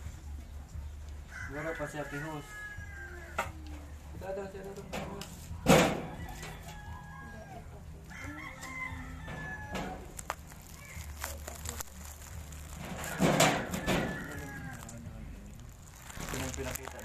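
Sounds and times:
rooster crowing: 1.3s - 3.5s, 5.9s - 10.2s, 12.9s - 15.1s.

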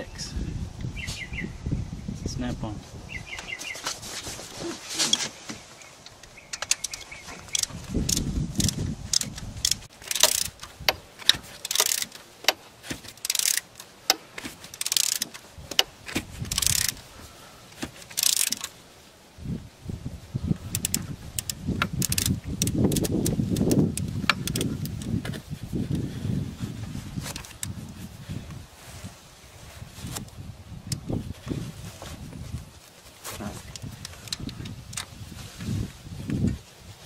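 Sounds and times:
gloved hands scraping engine parts: 3.4s - 17.1s
metal tool clicks: 6.1s - 12.6s
ratchet pawl clicking: 6.2s - 12.2s, 13.1s - 13.8s, 14.7s - 15.4s, 16.4s - 17.0s, 18.1s - 18.7s, 20.7s - 25.1s.

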